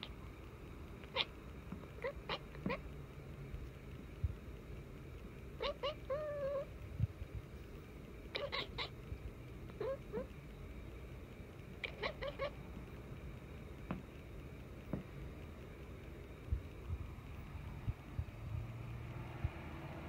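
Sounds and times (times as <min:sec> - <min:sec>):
cat chirping: 0:01.0 - 0:02.9, 0:05.6 - 0:06.7, 0:08.3 - 0:09.0, 0:09.7 - 0:10.4, 0:11.8 - 0:12.6.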